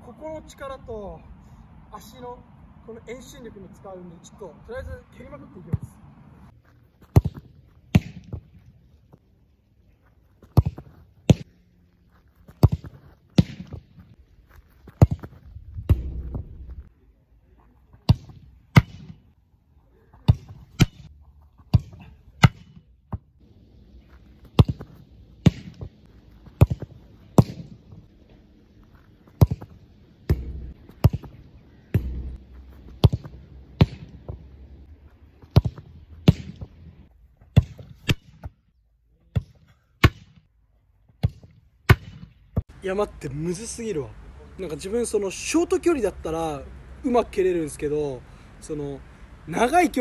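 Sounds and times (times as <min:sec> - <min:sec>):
boot kicking football thuds: 0:07.0 - 0:09.2, 0:10.4 - 0:11.6, 0:12.4 - 0:16.9, 0:24.0 - 0:28.1, 0:29.2 - 0:38.6.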